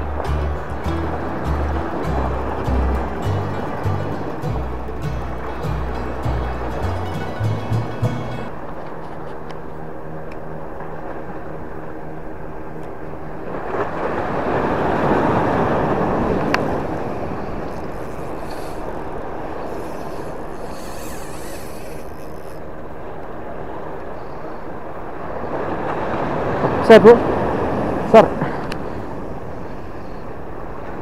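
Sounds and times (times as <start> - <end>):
sea at water's edge: 0.0 - 31.0
wind: 0.0 - 31.0.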